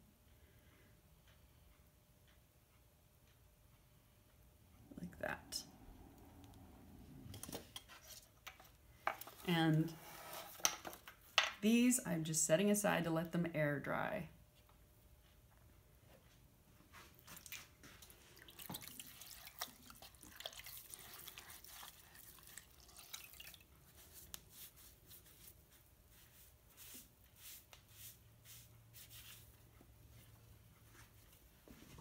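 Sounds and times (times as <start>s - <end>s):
dripping: 17.2s - 24.2s
sponge wiping wet clay: 19.0s - 31.3s.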